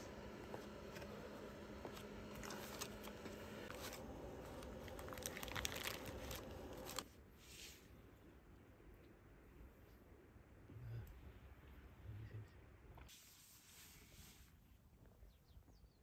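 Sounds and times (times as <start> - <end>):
baking paper crinkling: 1.9 - 7.1.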